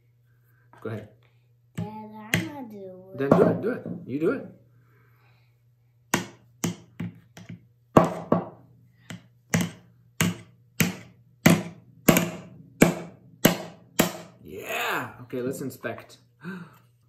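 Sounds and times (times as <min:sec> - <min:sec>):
hammer knocking nail into wood: 0:06.1 - 0:08.5, 0:09.1 - 0:14.4.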